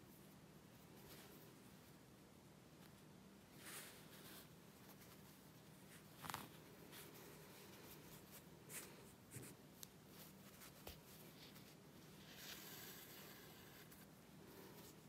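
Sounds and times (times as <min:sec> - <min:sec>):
thread pulled through fabric: 0:03.5 - 0:15.0.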